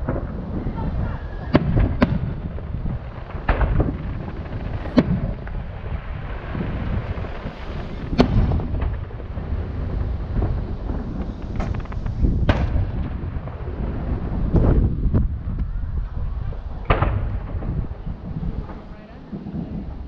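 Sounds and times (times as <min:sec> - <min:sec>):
firework shells bursting: 0:00.0 - 0:15.7
low rumble: 0:00.0 - 0:20.0.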